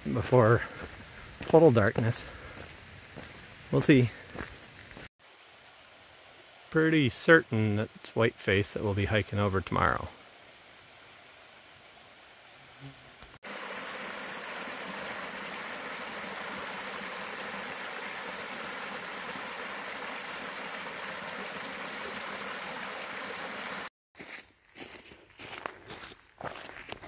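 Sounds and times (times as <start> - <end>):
stream rushing over stones: 13.4 - 23.9.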